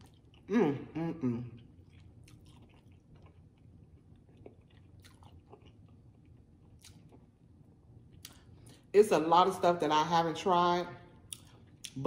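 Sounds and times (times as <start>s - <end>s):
soft chewing: 0.0s - 8.9s, 11.2s - 12.0s.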